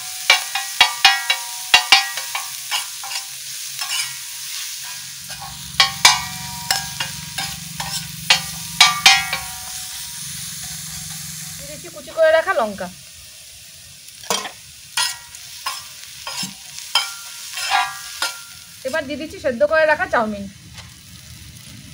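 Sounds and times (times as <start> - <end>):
metal spatula clanging on pan: 0.0 - 11.4, 14.2 - 18.9
faint sizzle: 0.0 - 21.9.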